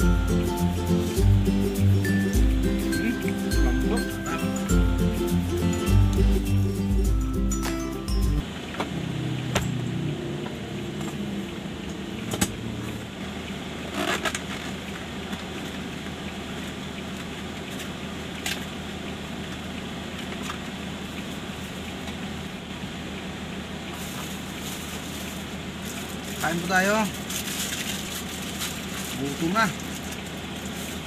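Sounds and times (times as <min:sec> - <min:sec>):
car hum: 0:00.0 - 0:31.0
passing road traffic: 0:00.0 - 0:31.0
paper and cardboard crinkling: 0:24.0 - 0:31.0.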